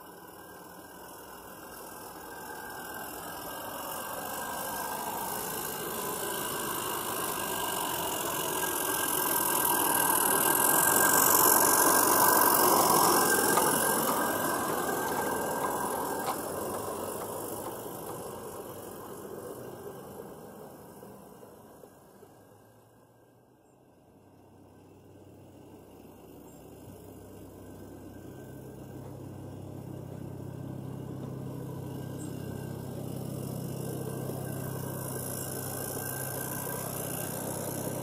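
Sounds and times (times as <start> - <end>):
steam hissing: 0.0 - 21.8, 27.6 - 38.0
wheels running on rails: 0.0 - 23.1, 25.1 - 38.0.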